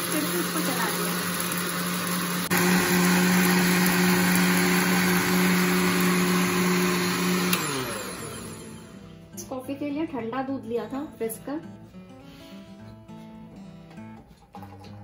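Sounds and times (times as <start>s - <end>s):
blender motor spinning down: 0.0s - 9.0s
blender running: 0.0s - 9.0s.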